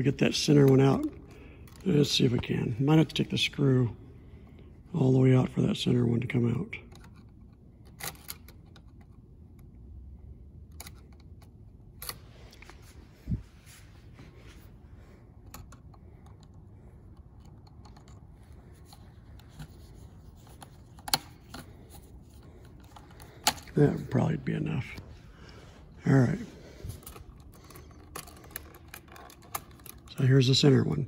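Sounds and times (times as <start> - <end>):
screwdriver clicks and scrapes: 15.4 - 23.8.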